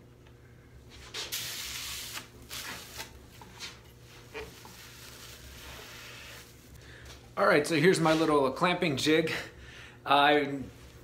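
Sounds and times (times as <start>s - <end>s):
rag wiping wooden panel: 2.6s - 6.7s.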